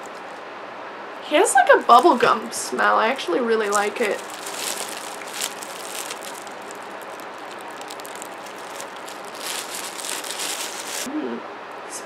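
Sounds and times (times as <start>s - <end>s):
plastic bag crinkling: 1.6s - 2.5s, 3.6s - 11.1s.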